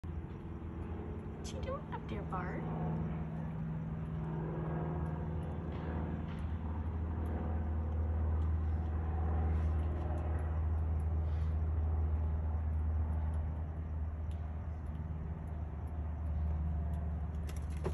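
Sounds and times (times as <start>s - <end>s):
low background rumble: 0.0s - 17.9s
faint clicks: 9.8s - 17.6s.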